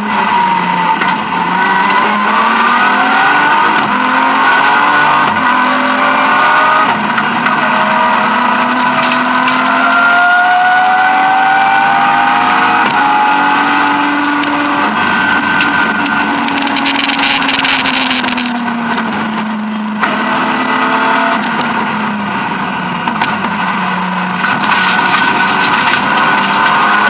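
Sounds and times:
car engine from inside cabin: 0.0s - 27.0s
sharp crackling and clicking: 8.8s - 10.0s, 15.6s - 19.0s, 24.4s - 27.0s.

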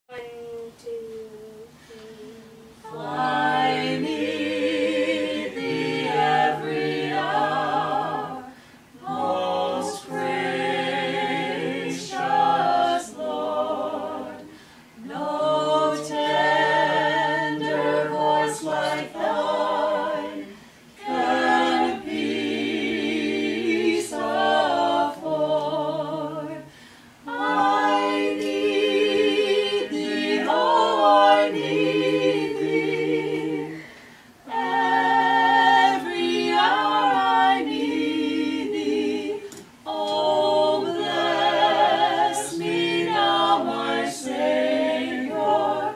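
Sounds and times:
a cappella group singing: 0.1s - 45.9s
singers breathing: 8.5s - 9.0s, 14.5s - 15.0s, 26.6s - 27.2s, 33.7s - 34.4s.

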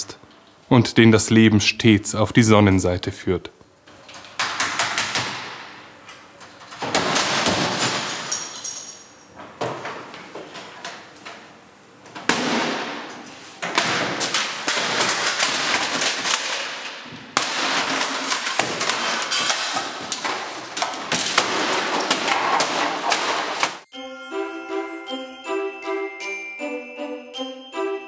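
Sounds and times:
computer tower being smashed: 13.7s - 23.8s.

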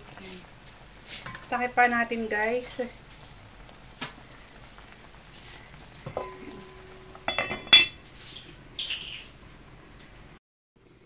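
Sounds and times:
metal lid clanking onto pot: 6.1s - 8.0s.

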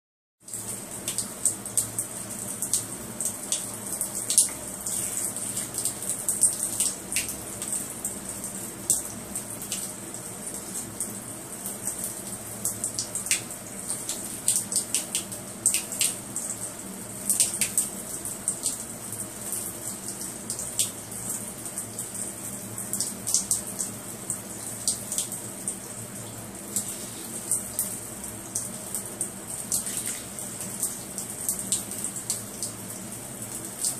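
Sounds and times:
tap water splashing: 29.7s - 30.6s.

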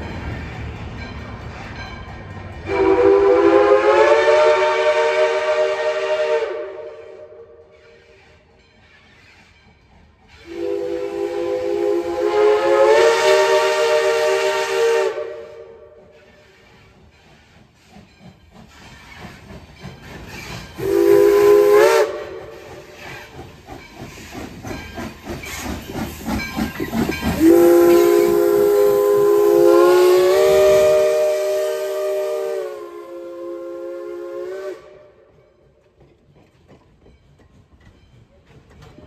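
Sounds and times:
steam locomotive chuffing: 0.0s - 39.0s
steam whistle blowing: 2.7s - 8.4s, 10.4s - 16.8s, 20.8s - 23.4s, 27.4s - 35.3s.

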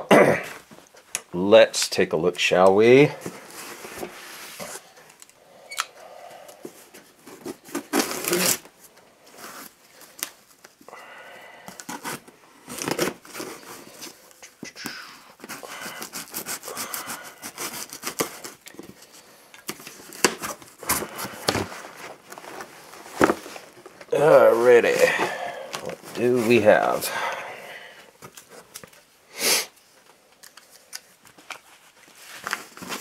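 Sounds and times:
packing tape ripping: 7.4s - 8.7s, 11.7s - 13.8s, 15.4s - 18.6s.

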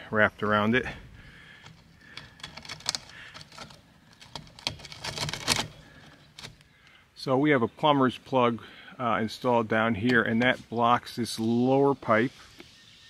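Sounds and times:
mesh basket clicking on plastic pipe: 1.6s - 6.6s.

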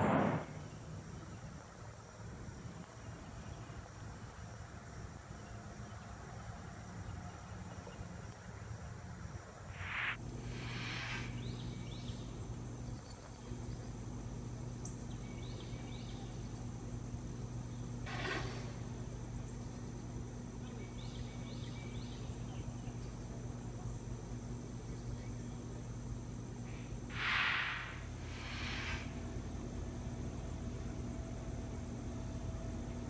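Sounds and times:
brief rushing noise: 0.0s - 0.6s, 9.7s - 11.3s
steady low hum: 0.0s - 33.0s.

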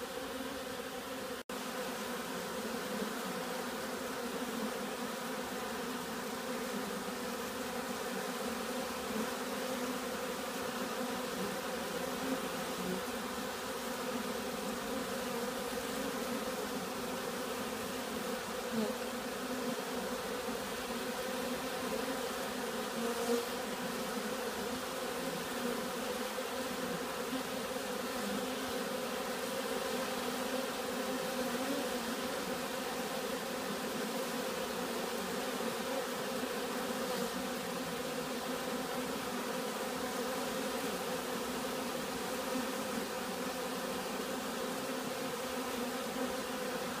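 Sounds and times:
honeybees buzzing: 0.0s - 47.0s.

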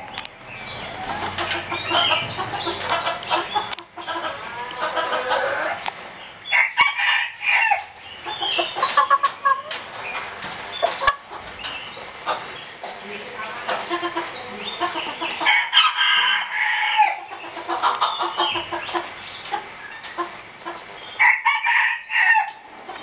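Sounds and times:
chickens clucking: 0.0s - 23.0s
rooster crow-like call: 21.2s - 22.5s.

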